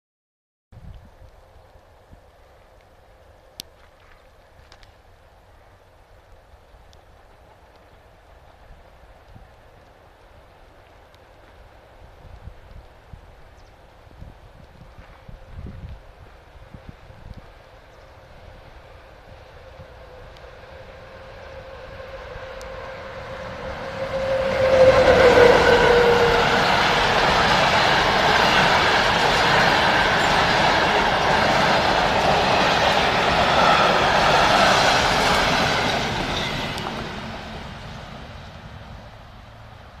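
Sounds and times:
train carriages rushing on rails: 18.4s - 39.7s
train horn tone: 19.3s - 29.2s.

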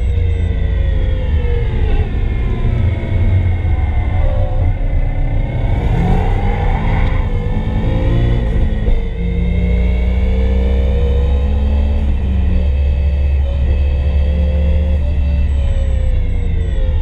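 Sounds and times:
car engine accelerating: 0.0s - 17.0s.

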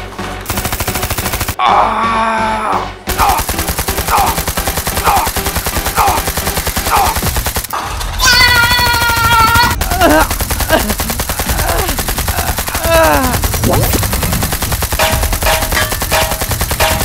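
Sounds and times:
machine-gun fire: 0.4s - 1.6s, 3.1s - 17.0s
long cry: 8.2s - 10.1s
person groaning: 9.9s - 13.4s.

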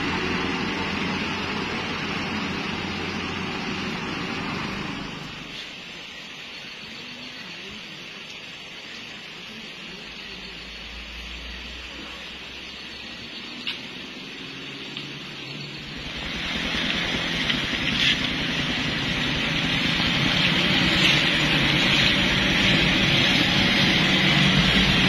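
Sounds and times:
rain on a wet road: 0.0s - 6.2s, 13.0s - 25.0s.

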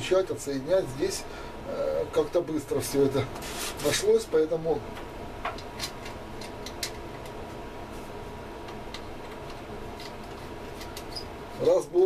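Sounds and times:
steady background hum: 0.0s - 12.0s
small tools clicking and tapping: 5.4s - 7.4s.

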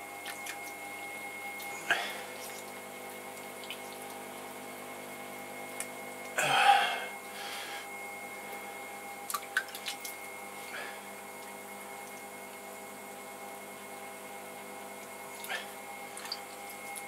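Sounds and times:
pottery wheel motor hum: 0.0s - 17.0s
wet clay squelch: 0.2s - 2.8s.

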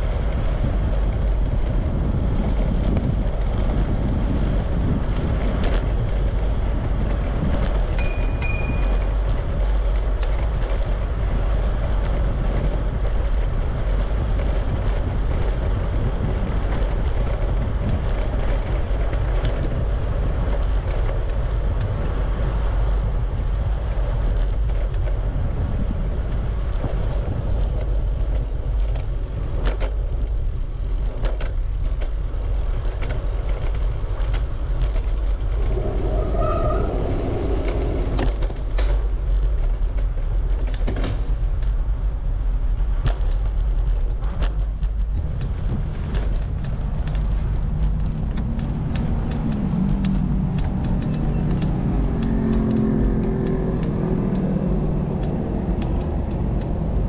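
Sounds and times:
bicycle tyre rumble: 0.0s - 57.0s
wind buffeting microphone: 0.0s - 57.0s
short tone: 8.0s - 9.2s.

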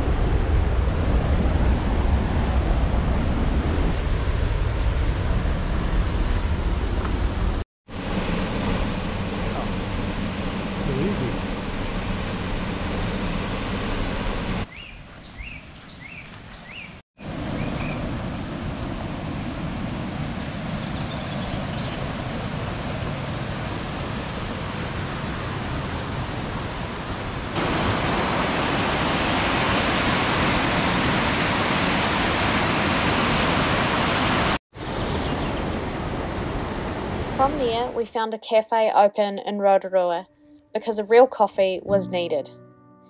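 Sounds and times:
waterfall roaring: 4.9s - 14.6s, 17.2s - 37.9s
high bird chirps: 14.7s - 17.0s.

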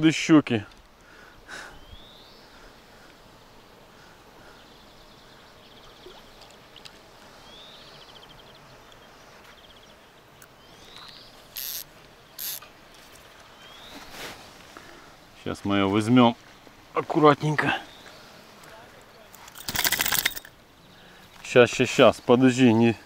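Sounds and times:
songbird singing trill: 1.8s - 2.5s, 4.6s - 12.7s, 13.5s - 14.1s.

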